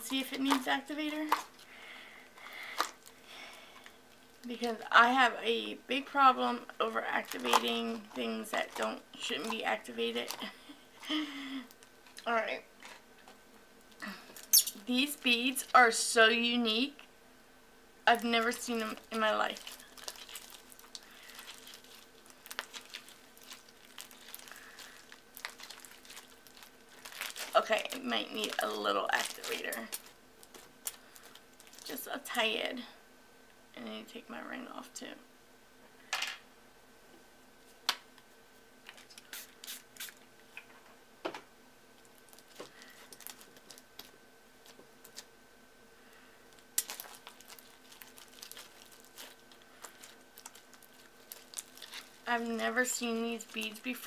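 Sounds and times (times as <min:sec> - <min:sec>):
sticky slime squishing: 0:19.2 - 0:31.0, 0:46.8 - 0:52.3.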